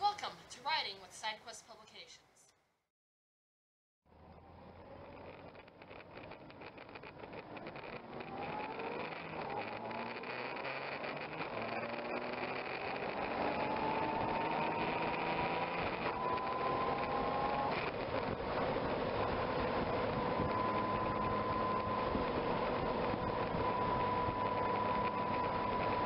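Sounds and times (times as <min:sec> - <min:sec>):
motorcycle engine accelerating: 0:04.1 - 0:26.0.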